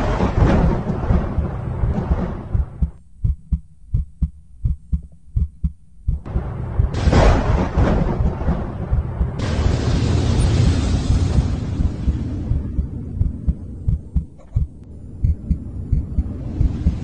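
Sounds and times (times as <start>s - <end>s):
rumble breaking into crash: 0.0s - 3.0s, 6.3s - 13.3s
heartbeat-like thumps: 0.0s - 17.0s.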